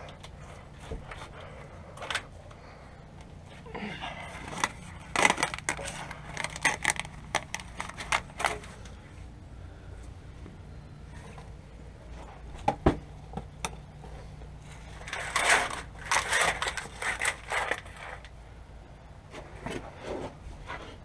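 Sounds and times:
low steady hum: 0:00.0 - 0:21.0
gloved hands scraping and rustling: 0:14.0 - 0:18.4.

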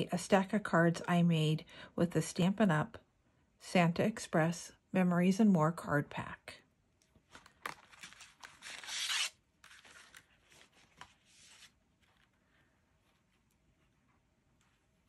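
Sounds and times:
cards sliding and rubbing: 0:07.3 - 0:12.4.

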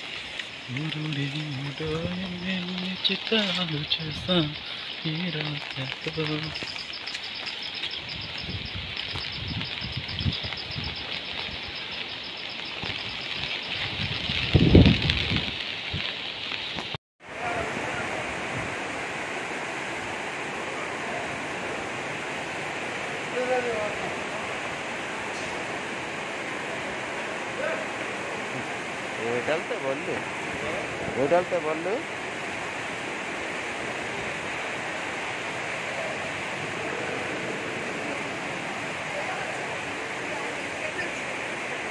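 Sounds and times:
floodwater rushing: 0:00.0 - 0:41.9
outdoor wind noise: 0:06.5 - 0:17.0.

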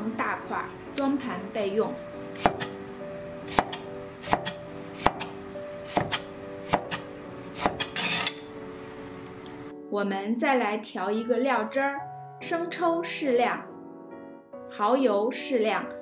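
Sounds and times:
cleaver chopping on wooden board: 0:02.4 - 0:02.8, 0:03.5 - 0:08.4
blade scraping board: 0:07.6 - 0:08.5.

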